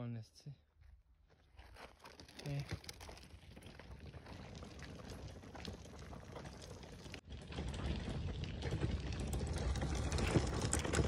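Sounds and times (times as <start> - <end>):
footsteps crunching gravel: 0.8 - 11.0
cooler pulled along gravel: 1.6 - 11.0.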